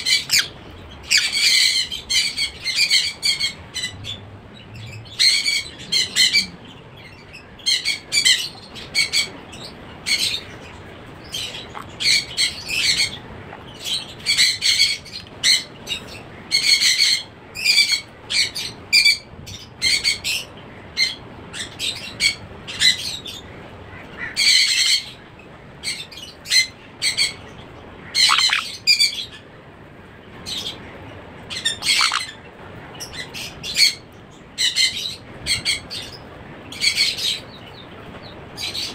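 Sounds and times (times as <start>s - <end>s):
parrot chick calling: 0.0s - 4.2s, 11.4s - 13.6s, 28.1s - 29.2s, 31.5s - 32.4s.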